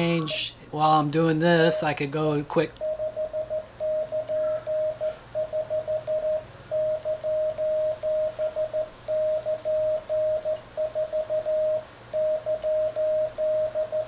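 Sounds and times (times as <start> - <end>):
morse code tone: 2.8 - 14.0.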